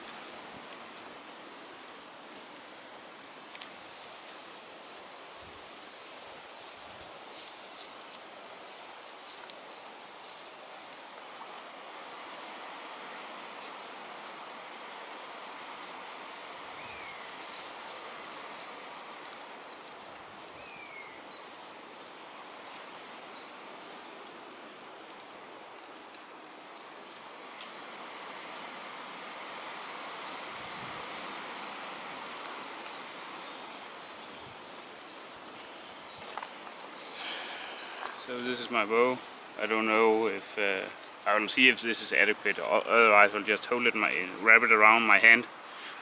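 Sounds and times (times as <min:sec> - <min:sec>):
steady outdoor hiss: 0:00.0 - 0:46.0
songbird singing with trill: 0:03.1 - 0:04.5, 0:11.5 - 0:12.8, 0:14.5 - 0:16.0, 0:16.8 - 0:24.3, 0:25.0 - 0:27.8, 0:28.4 - 0:32.0, 0:33.3 - 0:39.6, 0:44.3 - 0:46.0.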